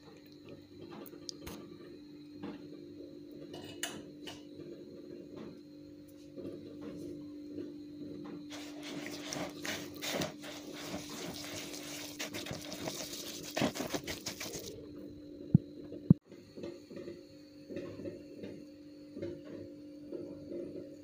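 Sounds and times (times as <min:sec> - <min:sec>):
hand rubbing wet semolina: 0:08.5 - 0:14.8.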